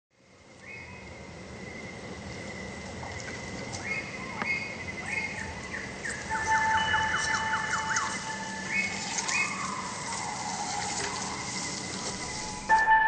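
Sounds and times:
high whistled bird calls: 0:00.6 - 0:12.7
thin steady high tone: 0:05.5 - 0:13.0
even hiss: 0:06.2 - 0:12.8.

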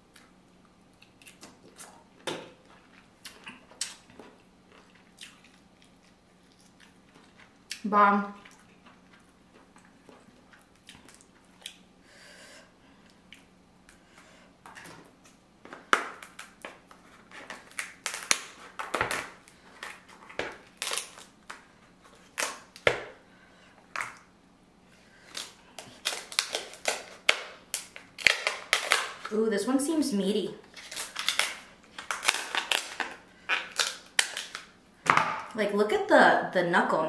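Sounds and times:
crab shell cracking: 0:30.8 - 0:34.8.

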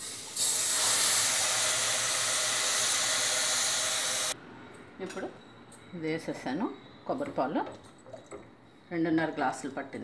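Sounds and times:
loud sizzling steam hiss: 0:00.0 - 0:04.4.

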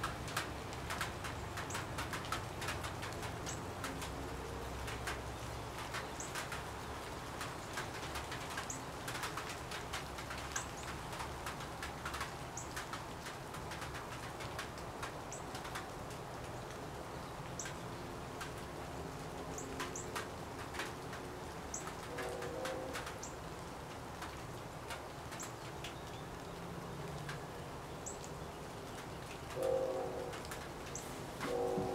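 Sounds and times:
low cooing: 0:29.6 - 0:30.5, 0:31.4 - 0:31.9.

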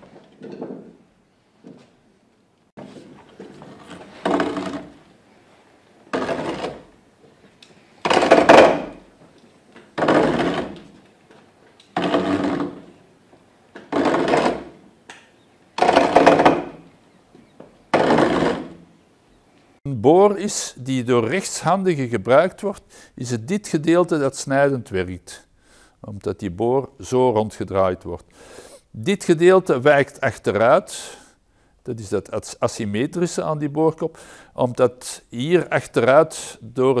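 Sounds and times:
auger creaking into wood: 0:03.3 - 0:05.0, 0:06.1 - 0:06.9, 0:08.0 - 0:09.1, 0:09.8 - 0:11.0, 0:11.8 - 0:13.0, 0:13.8 - 0:14.8, 0:15.8 - 0:16.9, 0:17.9 - 0:18.8.

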